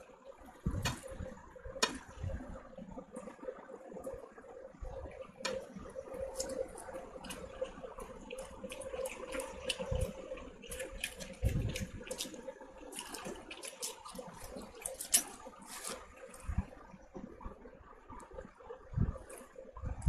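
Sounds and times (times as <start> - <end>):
faint steady hum: 0.0 - 20.0
fingers squishing food: 5.4 - 16.7
wet chewing and lip smacks: 6.2 - 16.5.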